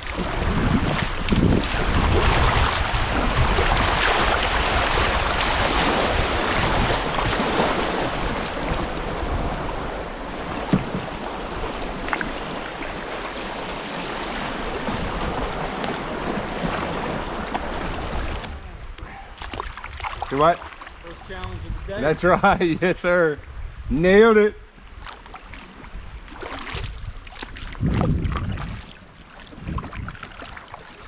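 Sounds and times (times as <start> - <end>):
river water rushing: 0.0 - 21.2
wind buffeting microphone: 0.0 - 22.7, 25.8 - 30.5.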